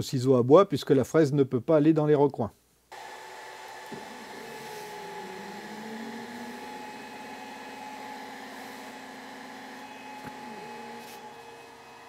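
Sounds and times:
cooling fan humming: 0:02.9 - 0:12.0
stepper motors whining: 0:03.0 - 0:12.0.

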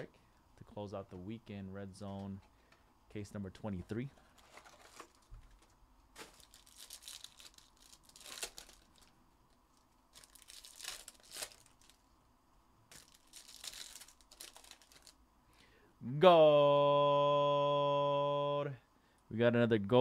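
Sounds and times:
foil card packs tearing: 0:04.2 - 0:09.1, 0:10.1 - 0:12.0, 0:12.9 - 0:15.2.

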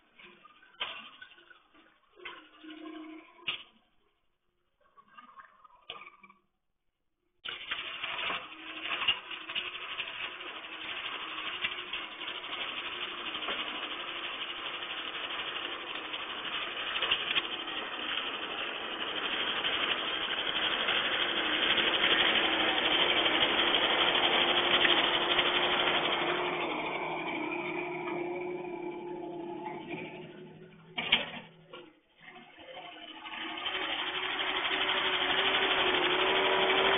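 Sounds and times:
machine rattling: 0:07.5 - 0:36.9
loader engine hum: 0:21.5 - 0:31.8.

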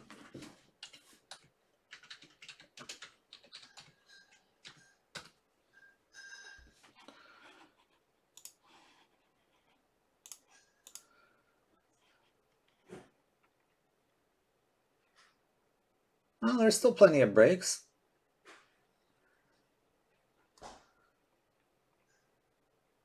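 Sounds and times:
typing on computer keyboard: 0:00.8 - 0:05.4.

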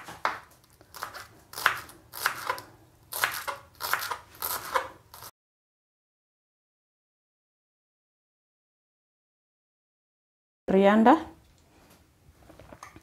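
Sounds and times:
knife chopping on wooden board: 0:00.0 - 0:05.3.

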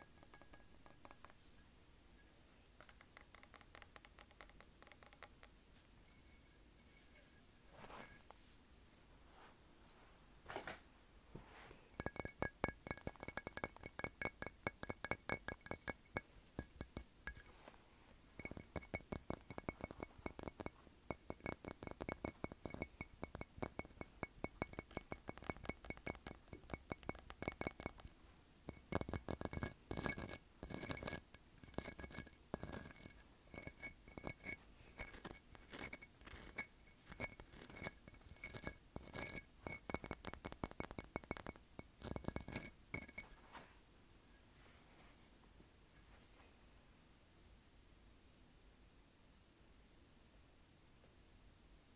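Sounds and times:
fingernails tapping on shell and glass: 0:00.0 - 0:01.4, 0:02.8 - 0:05.5, 0:12.0 - 0:17.5, 0:18.4 - 0:43.3
faint high ringing: 0:00.0 - 0:02.7, 0:05.6 - 0:08.6, 0:11.6 - 0:45.1.

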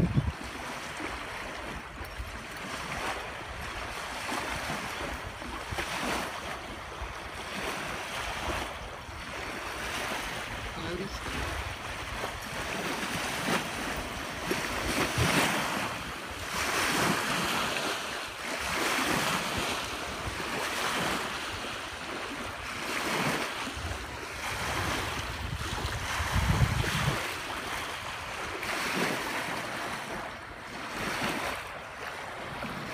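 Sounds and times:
wind buffeting microphone: 0:00.0 - 0:17.7, 0:18.6 - 0:29.1
waves washing onto sandy shore: 0:00.0 - 0:32.9.

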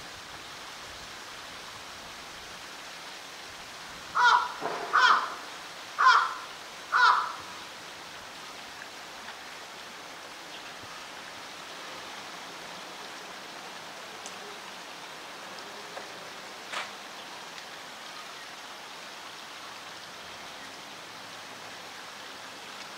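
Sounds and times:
steady background hiss: 0:00.0 - 0:22.9
crow cawing: 0:04.2 - 0:07.5.

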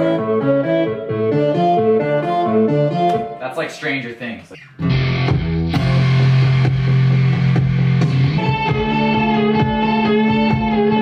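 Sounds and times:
electric guitar sustained notes: 0:04.8 - 0:11.0.

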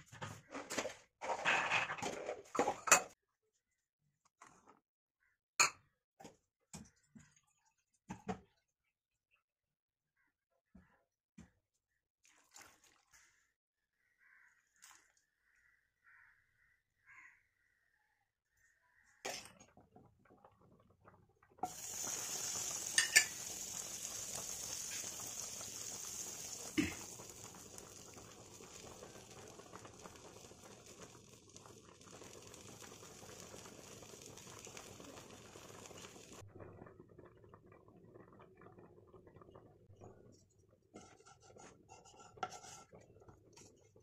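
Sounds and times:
butter sizzling in a pan: 0:21.6 - 0:36.4.

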